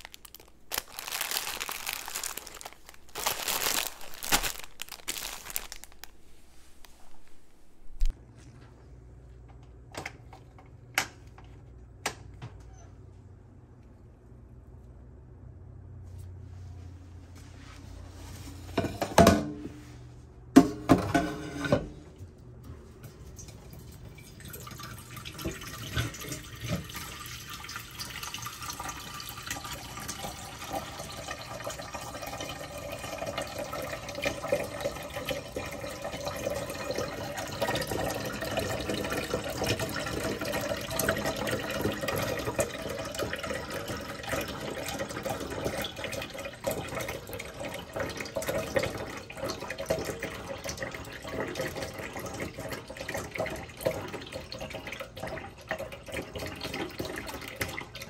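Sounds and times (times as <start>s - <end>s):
water running: 23.0s - 58.0s.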